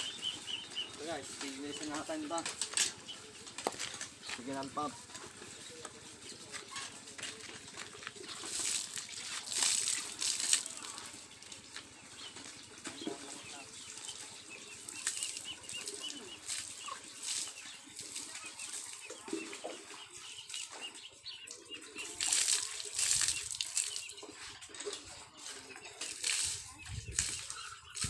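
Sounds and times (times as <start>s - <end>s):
water splashing from bucket: 7.6s - 28.0s.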